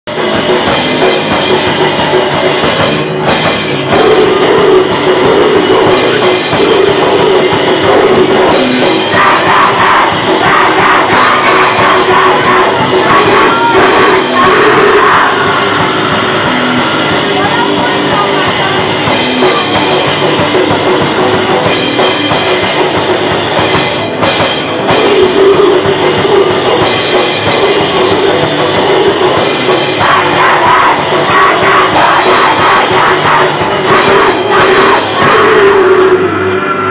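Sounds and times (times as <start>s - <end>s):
drum kit: 0.0s - 36.9s
electric guitar: 0.1s - 36.9s
punk rock band playing: 0.1s - 36.9s
person singing: 3.9s - 21.0s, 24.9s - 36.8s.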